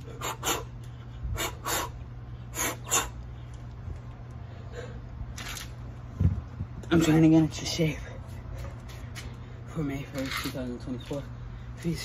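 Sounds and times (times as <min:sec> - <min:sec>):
person breathing hard: 0:00.0 - 0:03.6, 0:04.4 - 0:05.2.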